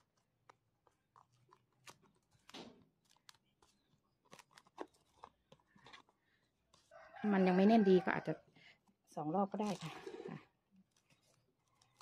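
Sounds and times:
cling film crinkling: 0:00.0 - 0:07.0, 0:09.4 - 0:12.0.

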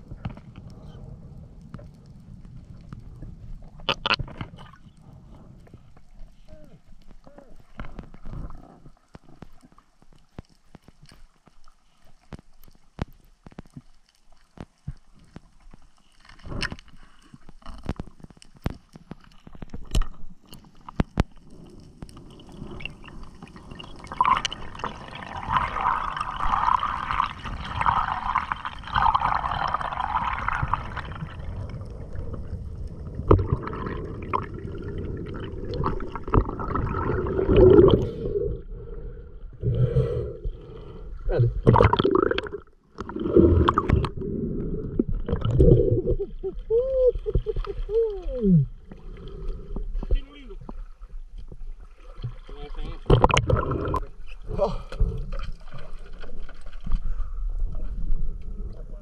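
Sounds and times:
underwater clicks and ticks: 0:00.0 - 0:58.8
water rushing and gurgling: 0:17.6 - 0:59.0.

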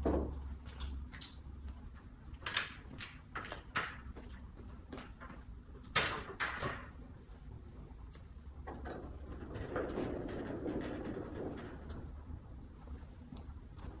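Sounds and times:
steady low hum: 0:00.0 - 0:14.0
stepladder knocks and clatters: 0:05.9 - 0:07.0, 0:08.6 - 0:12.2.

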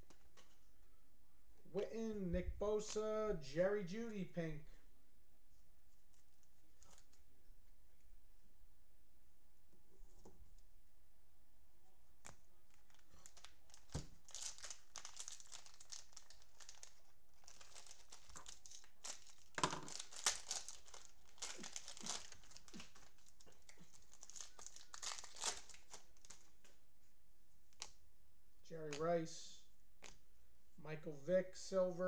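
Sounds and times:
cellophane wrappers tearing and crinkling: 0:12.7 - 0:26.5.

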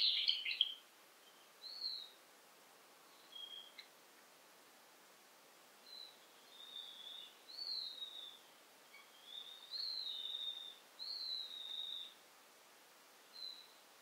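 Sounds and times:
faint background hiss: 0:00.0 - 0:14.0
songbird whistling: 0:03.2 - 0:03.8, 0:05.9 - 0:08.4, 0:09.0 - 0:12.2.

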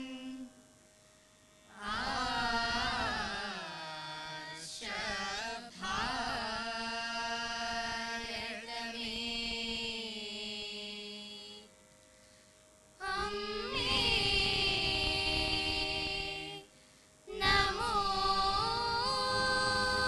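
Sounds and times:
children singing together: 0:01.8 - 0:09.8, 0:13.0 - 0:16.7, 0:17.3 - 0:20.0.

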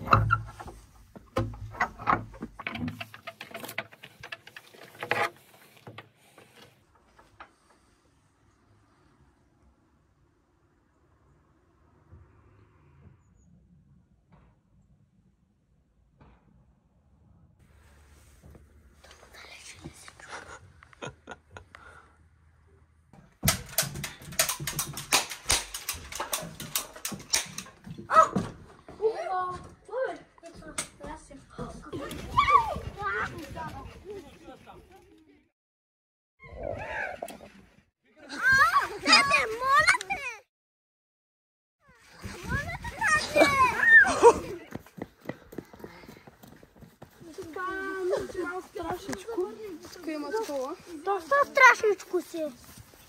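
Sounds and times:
wood and metal fittings clattering: 0:00.0 - 0:07.9, 0:23.2 - 0:28.7
footsteps on wooden steps: 0:23.2 - 0:32.2
flag slapping: 0:23.4 - 0:27.7
high child's voice: 0:28.2 - 0:34.2, 0:38.3 - 0:40.5, 0:41.9 - 0:44.7, 0:47.2 - 0:52.7.

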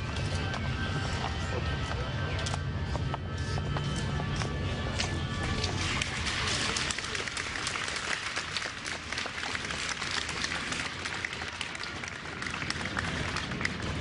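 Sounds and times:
crowd applause: 0:05.6 - 0:14.0.

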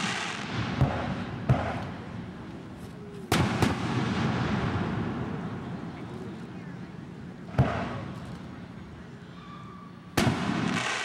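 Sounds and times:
fireworks shells bursting: 0:00.0 - 0:02.0, 0:10.2 - 0:11.0.

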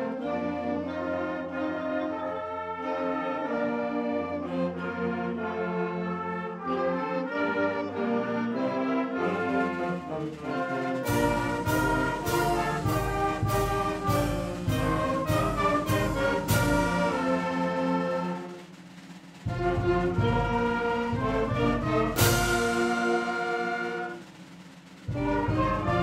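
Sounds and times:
percussion strokes: 0:09.2 - 0:26.0.

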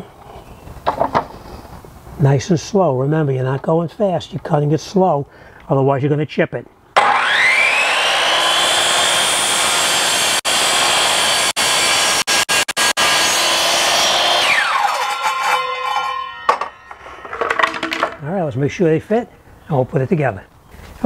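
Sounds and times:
saw motor winding down: 0:07.0 - 0:17.0
miter saw cutting: 0:07.0 - 0:17.3.

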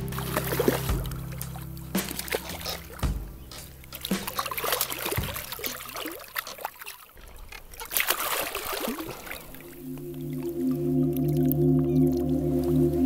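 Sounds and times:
fish splashing in water: 0:00.0 - 0:10.4
water trickling: 0:00.0 - 0:13.0.

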